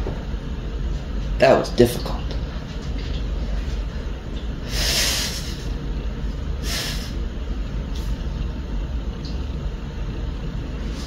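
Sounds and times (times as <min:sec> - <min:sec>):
steady low hum: 0:00.0 - 0:11.0
forceful hissy breaths: 0:04.6 - 0:05.8, 0:06.6 - 0:07.3.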